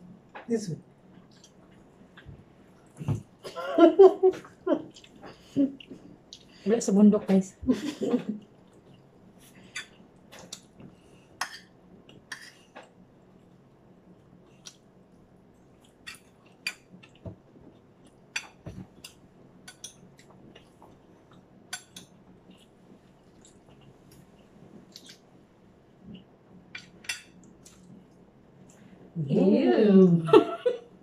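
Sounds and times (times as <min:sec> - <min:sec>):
faint chewing: 0:04.4 - 0:06.6, 0:14.2 - 0:25.3, 0:26.0 - 0:28.9.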